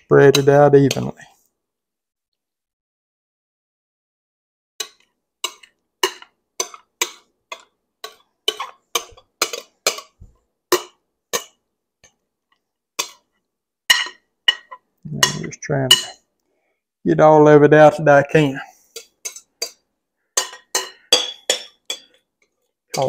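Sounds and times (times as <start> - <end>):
spoon clinking against glass bowl: 13.9 - 16.2, 20.4 - 22.2.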